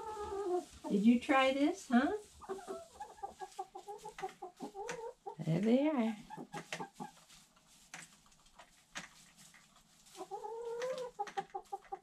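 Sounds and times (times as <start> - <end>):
hen clucking: 0.0 - 7.5, 10.0 - 12.0
hens pecking: 0.0 - 12.0.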